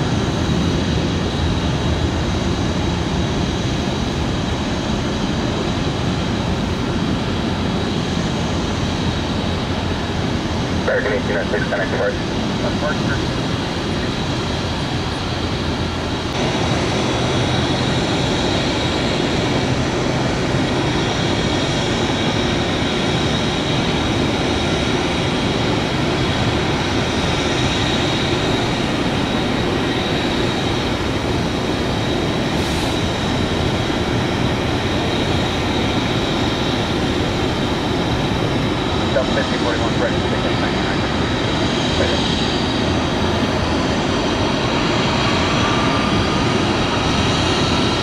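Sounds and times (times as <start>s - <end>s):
jet engines roaring: 0.0s - 48.0s.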